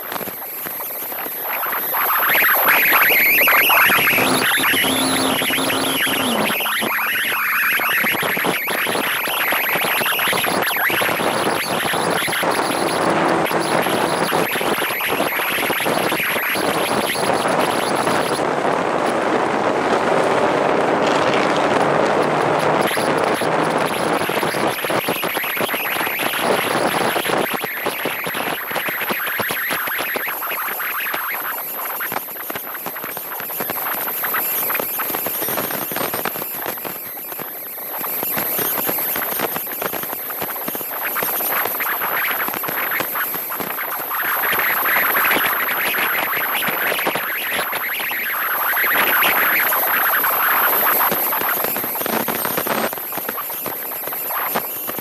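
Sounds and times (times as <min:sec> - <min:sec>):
wind and road noise: 0:00.0 - 0:30.4
thin high whine: 0:00.0 - 0:55.0.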